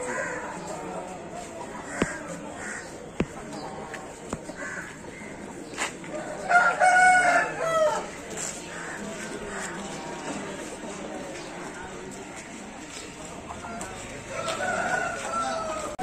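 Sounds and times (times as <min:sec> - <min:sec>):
rooster crowing: 0:14.3 - 0:16.0.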